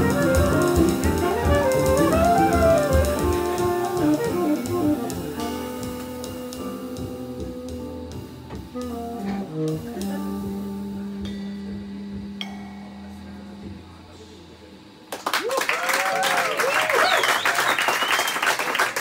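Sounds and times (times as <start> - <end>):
cymbal strokes: 0.0 - 15.1
jazz combo playing: 0.0 - 15.1.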